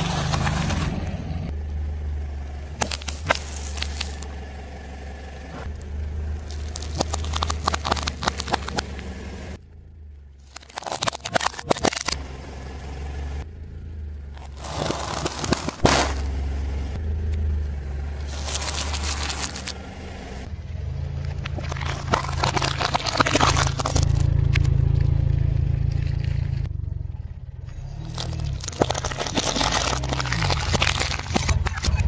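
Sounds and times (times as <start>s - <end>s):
car engine humming: 0.0s - 32.0s
tyre crushing plastic bottles: 6.4s - 8.9s, 10.5s - 12.2s, 14.4s - 16.3s, 18.2s - 19.8s, 21.6s - 24.3s, 28.0s - 32.0s.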